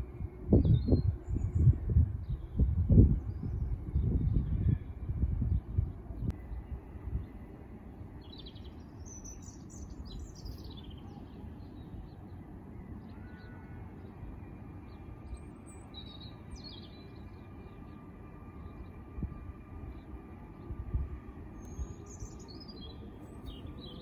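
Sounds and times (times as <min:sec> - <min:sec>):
steady low rumble: 0:00.0 - 0:11.0
songbirds chirping: 0:00.2 - 0:24.0.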